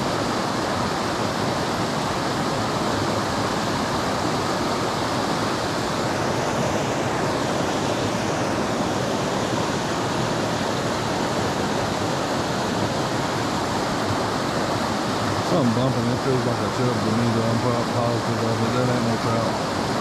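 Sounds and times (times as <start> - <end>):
creek water running over rocks: 0.0 - 20.0.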